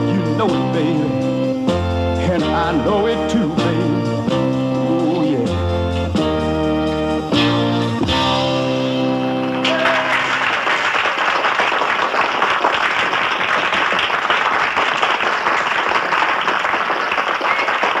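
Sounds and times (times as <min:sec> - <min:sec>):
audience applauding: 0:09.5 - 0:18.0.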